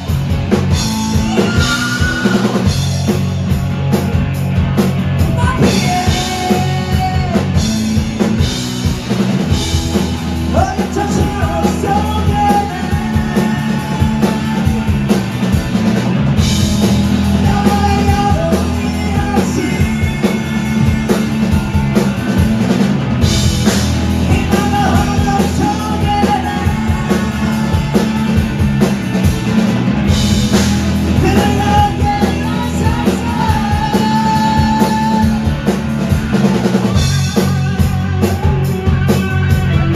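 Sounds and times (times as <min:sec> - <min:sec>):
drum kit: 0:00.0 - 0:39.9
electric guitars: 0:00.0 - 0:39.9
live rock band playing: 0:00.0 - 0:39.9.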